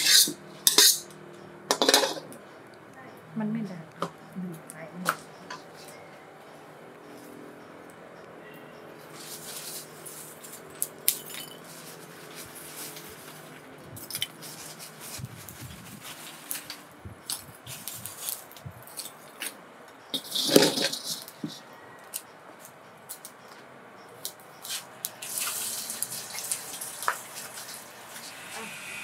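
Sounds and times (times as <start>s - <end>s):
wok clattering onto stove: 1.7s - 2.3s
charcoal lumps clicking and knocking: 24.2s - 28.3s.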